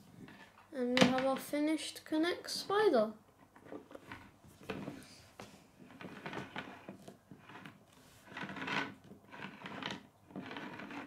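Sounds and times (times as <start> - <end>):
plastic model scraping on wood: 3.5 - 5.2, 5.8 - 11.0.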